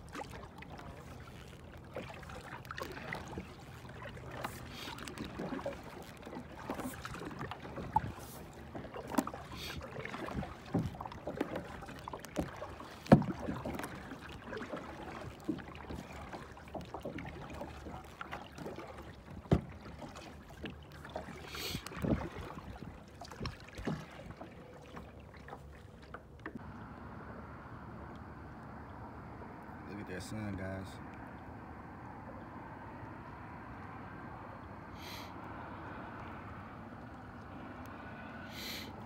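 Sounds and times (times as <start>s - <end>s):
paddle knocking plastic hull: 0.0s - 26.7s
paddle splashing in water: 0.0s - 27.1s, 33.0s - 39.0s.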